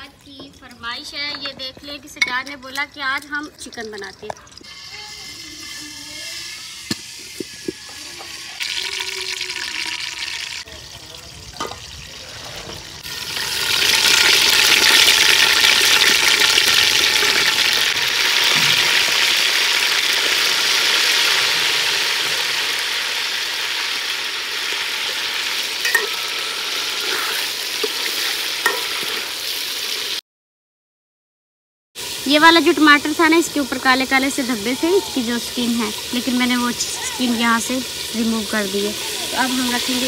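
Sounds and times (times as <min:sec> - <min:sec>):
chicken sizzling in a pot: 0:00.0 - 0:30.2, 0:32.0 - 0:40.0
metal ladle clinking on pot: 0:25.8 - 0:26.3, 0:28.6 - 0:29.0.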